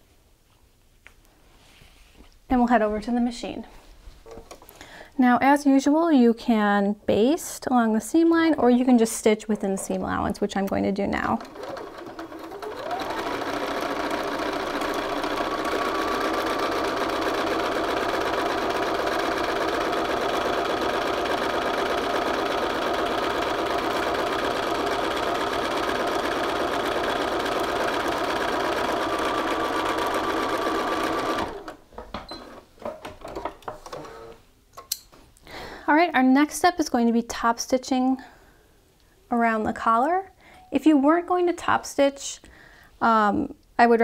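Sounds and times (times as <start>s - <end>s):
sewing machine stitching: 9.5s - 31.8s.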